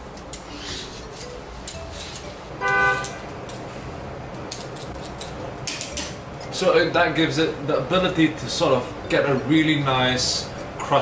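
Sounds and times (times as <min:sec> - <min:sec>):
peeler scraping a potato: 0:00.4 - 0:01.3.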